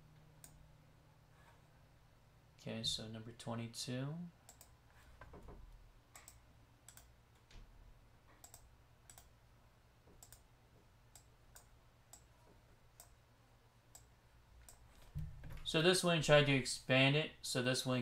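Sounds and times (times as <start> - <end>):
low steady hum: 0.0 - 18.0
computer clicks: 0.4 - 0.6, 4.5 - 4.8, 6.2 - 7.5, 8.4 - 9.3, 10.2 - 10.5, 11.1 - 12.3, 13.0 - 13.2, 13.9 - 14.8.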